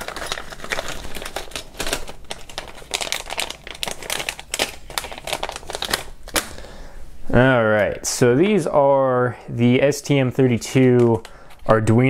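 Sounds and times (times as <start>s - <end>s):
plastic packaging crinkling: 0.0s - 6.8s.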